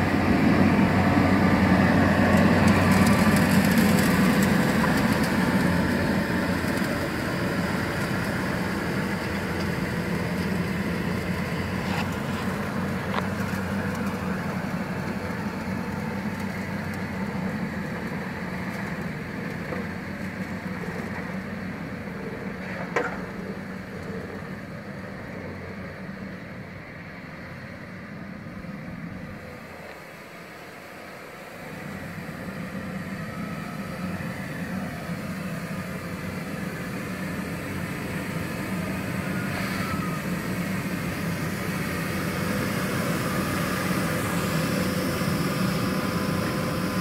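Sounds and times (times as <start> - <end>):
vacuum sweeper humming: 29.4 - 47.0.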